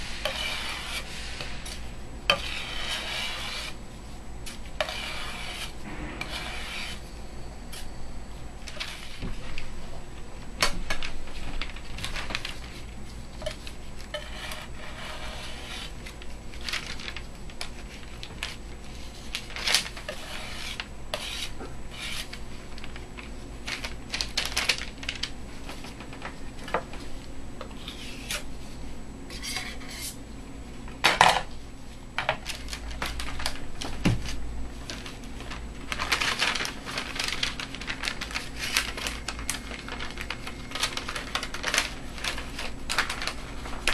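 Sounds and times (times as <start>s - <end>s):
paper rustling: 10.7s - 20.9s, 22.1s - 26.4s, 32.5s - 43.9s.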